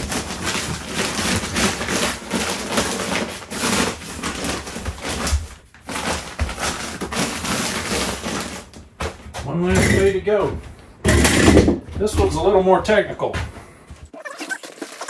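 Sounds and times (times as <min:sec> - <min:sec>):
paper rustling and crinkling: 0:00.0 - 0:09.5.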